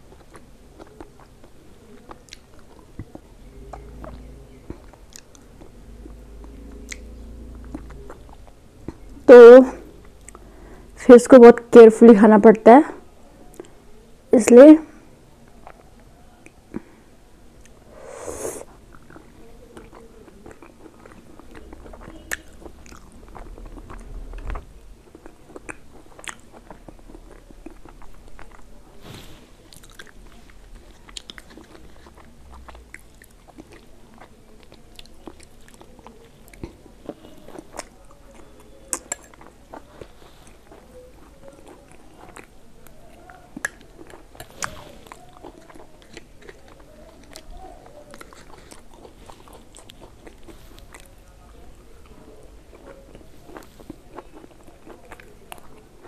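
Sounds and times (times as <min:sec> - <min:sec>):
person chewing food: 0:00.0 - 0:09.2, 0:15.4 - 0:17.0, 0:17.6 - 0:56.0
rustling: 0:28.9 - 0:29.6.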